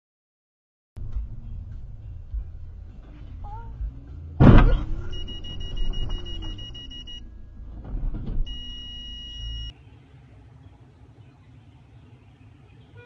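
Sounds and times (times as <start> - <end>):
low rumble of car: 1.0 - 13.0
high-pitched electronic warning beeps: 5.1 - 7.2, 8.5 - 9.7.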